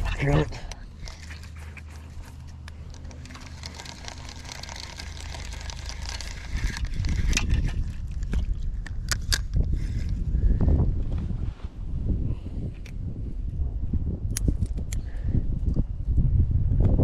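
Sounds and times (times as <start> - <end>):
fishing reel gears whirring: 0.0 - 9.4
rod handling noise: 0.0 - 10.2.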